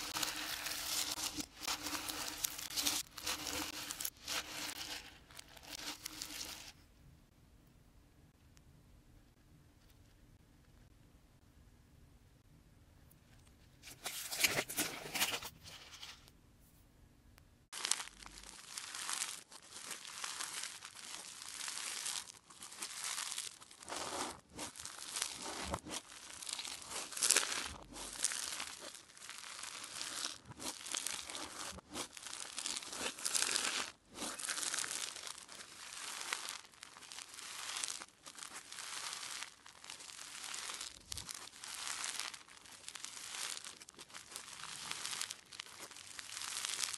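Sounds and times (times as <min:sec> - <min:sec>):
crunchy slime being squeezed: 0:17.7 - 0:46.9.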